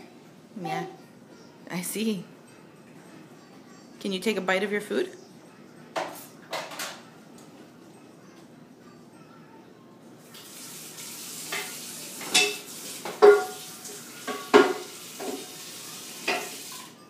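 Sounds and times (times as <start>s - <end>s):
running water: 10.3s - 17.0s
dishes clinking: 11.5s - 15.5s, 16.2s - 16.7s.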